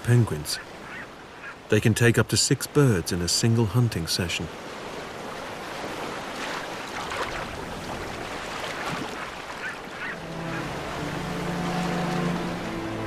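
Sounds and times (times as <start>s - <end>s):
seabirds honking: 0.0s - 1.8s, 8.7s - 13.0s
surf and splashing water: 0.0s - 13.0s
low music notes: 10.1s - 13.0s.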